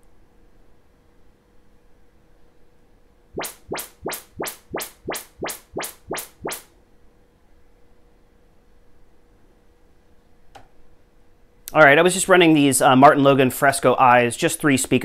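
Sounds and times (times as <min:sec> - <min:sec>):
rising test chirps from speaker: 0:03.4 - 0:06.6.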